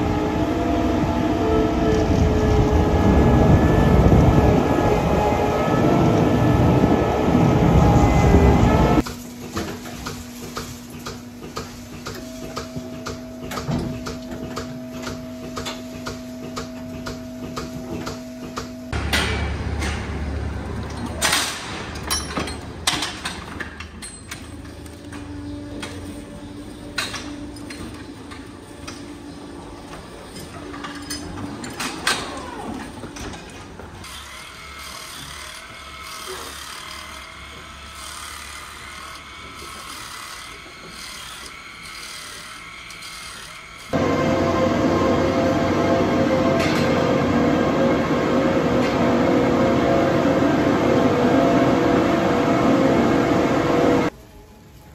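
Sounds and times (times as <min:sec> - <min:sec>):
low machine hum: 0:44.0 - 0:54.1.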